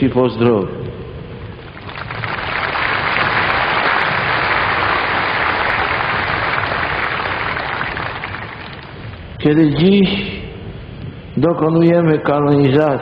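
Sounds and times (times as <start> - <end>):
crowd applauding: 1.6 - 9.4.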